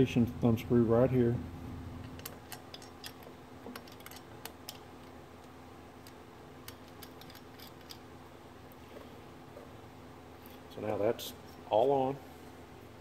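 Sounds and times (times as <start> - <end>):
metallic clicks of thumb screw: 6.0 - 8.0.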